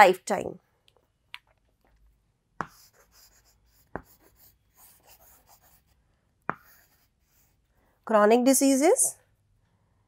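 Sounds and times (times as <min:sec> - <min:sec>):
chalk tapping on chalkboard: 0:02.6 - 0:05.8, 0:06.4 - 0:07.1
chalk scratching: 0:02.6 - 0:07.7.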